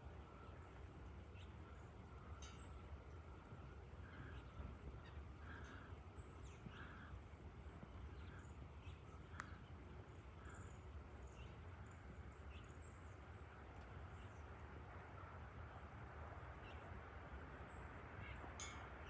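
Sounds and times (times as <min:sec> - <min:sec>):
birds chirping: 0:00.2 - 0:14.6.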